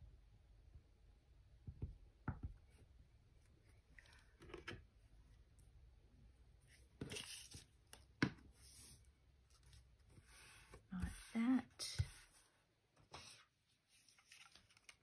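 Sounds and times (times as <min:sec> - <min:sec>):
paper being handled: 0:13.2 - 0:15.0.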